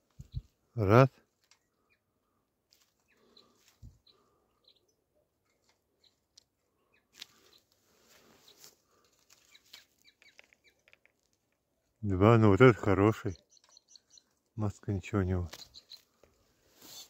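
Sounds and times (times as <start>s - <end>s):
high bird chirps: 9.4s - 10.9s, 13.1s - 14.4s, 15.5s - 16.2s.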